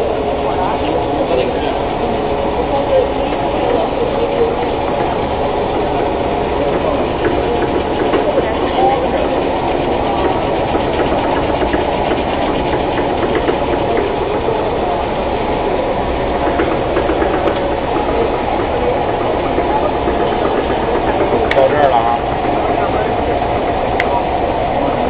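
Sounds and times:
production line machinery running: 0.0s - 25.0s.

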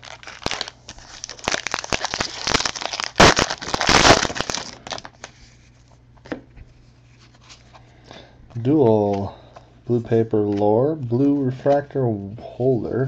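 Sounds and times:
foil wrapper crinkling: 0.0s - 5.9s.

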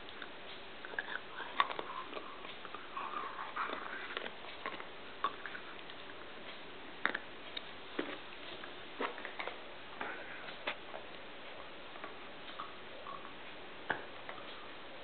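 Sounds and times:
dog chewing plastic toy: 0.2s - 6.2s.

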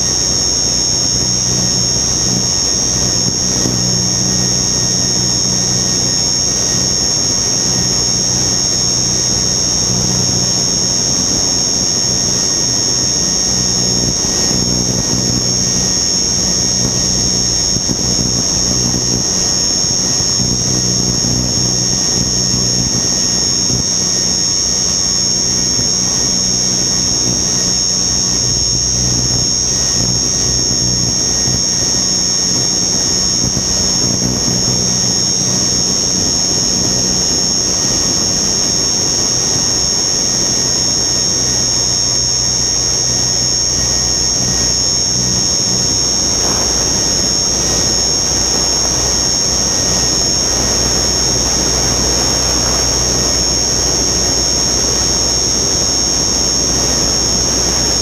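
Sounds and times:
helicopter motor whine: 0.0s - 58.0s
wind noise on microphone: 7.7s - 24.1s, 28.2s - 39.8s, 43.2s - 58.0s.

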